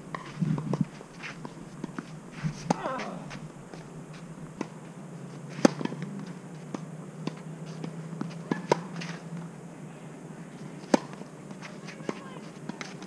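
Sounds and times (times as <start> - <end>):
racket hitting tennis ball: 0.1 - 3.4, 5.5 - 9.2, 10.6 - 13.0
tennis ball bounces: 5.5 - 9.2, 10.8 - 13.0.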